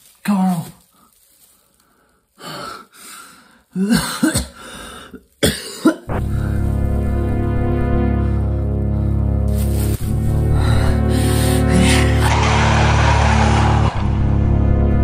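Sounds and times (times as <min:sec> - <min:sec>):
man coughing and gasping: 0:03.8 - 0:04.7, 0:05.4 - 0:06.1
music with sustained low notes: 0:06.1 - 0:15.0.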